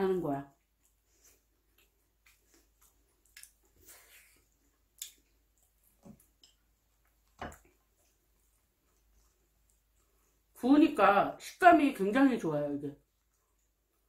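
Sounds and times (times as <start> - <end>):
person chewing with wet smacks: 0.5 - 10.6, 13.0 - 14.0.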